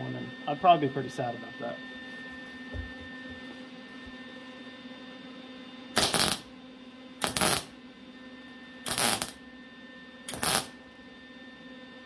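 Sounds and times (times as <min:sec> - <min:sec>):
steady hum: 0:00.0 - 0:12.0
welding crackle: 0:06.0 - 0:06.5, 0:07.2 - 0:07.7, 0:08.8 - 0:09.4, 0:10.3 - 0:10.7.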